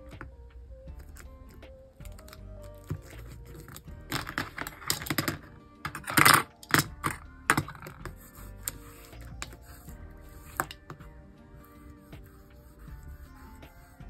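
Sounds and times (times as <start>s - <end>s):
soft background music: 0.0s - 14.0s
craft tools tapping and clicking: 1.0s - 9.9s, 10.5s - 11.1s.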